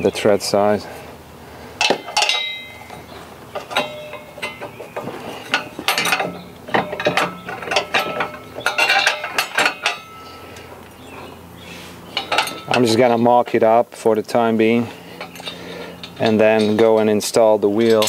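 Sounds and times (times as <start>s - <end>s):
metal bolts clinking and rattling: 1.8s - 11.3s, 12.0s - 13.6s, 14.6s - 18.0s.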